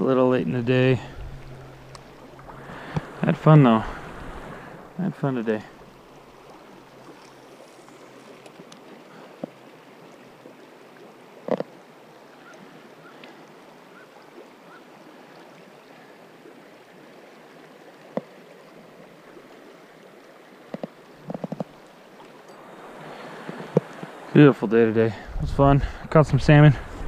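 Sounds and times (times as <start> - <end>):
river water rushing: 0.0 - 27.0.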